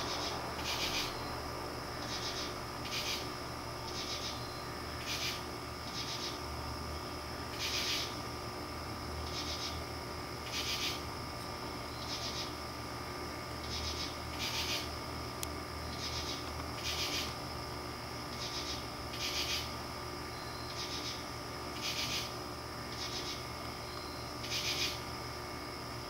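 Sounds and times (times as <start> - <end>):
insects calling in raspy bursts: 0.0 - 26.0
faint steady high tone: 4.4 - 4.9, 20.3 - 20.8, 23.8 - 24.4.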